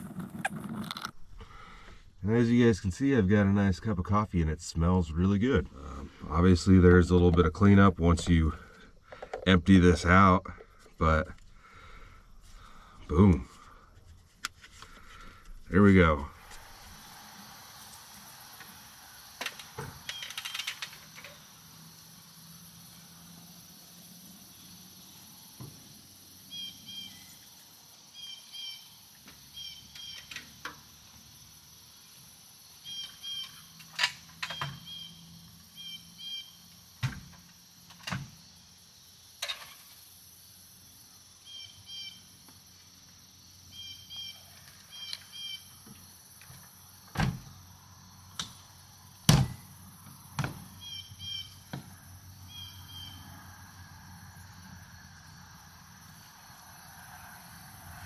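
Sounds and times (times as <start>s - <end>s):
small bird chirping: 20.0s - 21.7s, 26.3s - 30.6s, 32.0s - 36.9s, 41.4s - 42.5s, 43.6s - 45.9s, 50.8s - 51.7s, 52.4s - 53.3s
tailgate shutting: 47.1s - 47.6s.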